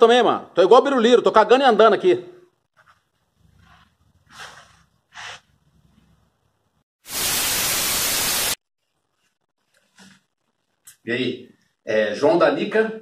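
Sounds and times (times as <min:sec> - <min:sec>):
tv static hiss: 0:07.1 - 0:08.6.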